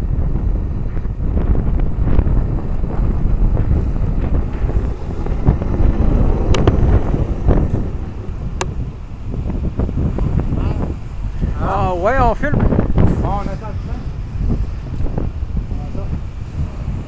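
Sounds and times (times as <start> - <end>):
truck rolling on railway track: 0.0 - 11.4
wind buffeting microphone: 0.0 - 17.0.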